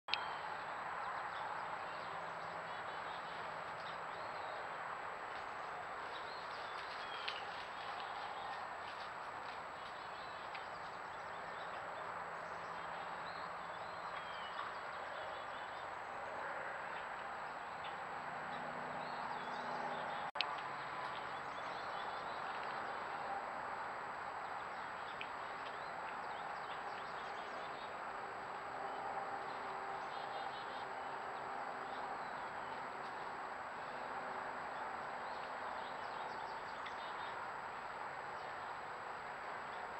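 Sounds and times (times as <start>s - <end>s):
small birds chirping: 5.4s - 16.1s.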